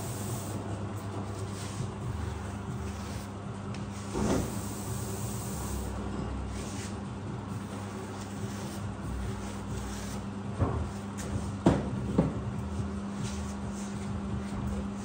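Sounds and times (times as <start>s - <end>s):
steady low hum: 0.0s - 15.0s
tools knocking on workbench: 11.6s - 12.4s.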